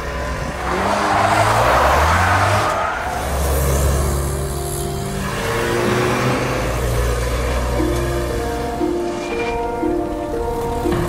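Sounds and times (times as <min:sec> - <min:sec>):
car tyres skidding: 0:00.0 - 0:11.0
soundtrack music: 0:03.2 - 0:11.0.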